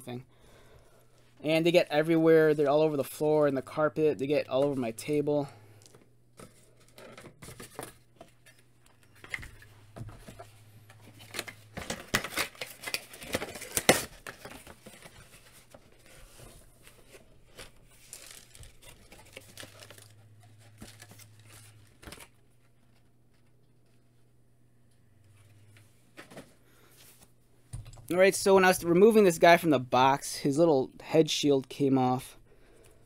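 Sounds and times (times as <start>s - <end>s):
cardboard packaging rustling: 6.4s - 24.0s.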